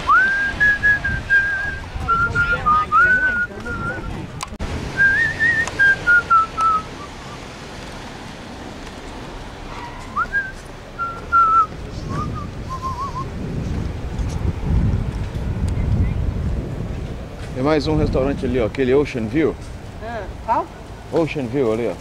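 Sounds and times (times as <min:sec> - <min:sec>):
low street noise: 0:00.0 - 0:22.0
person whistling a tune: 0:00.1 - 0:04.2, 0:05.0 - 0:07.4, 0:10.2 - 0:13.3.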